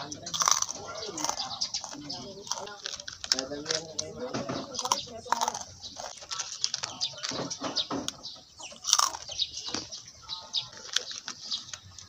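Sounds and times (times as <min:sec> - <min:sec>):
plastic wrapper crinkling: 0:01.9 - 0:04.1, 0:04.7 - 0:07.6, 0:10.6 - 0:12.0.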